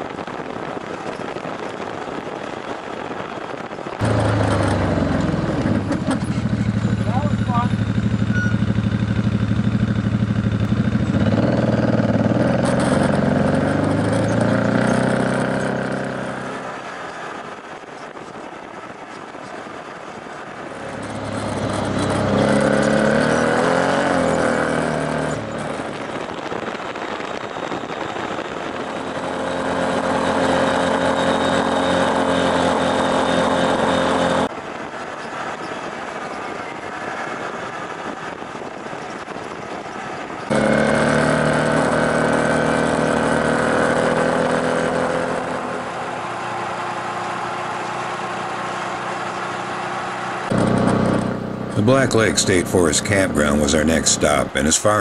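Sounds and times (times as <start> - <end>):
off-road vehicle engine revving: 4.0 - 16.9, 20.7 - 27.0, 28.7 - 34.5, 40.4 - 55.0.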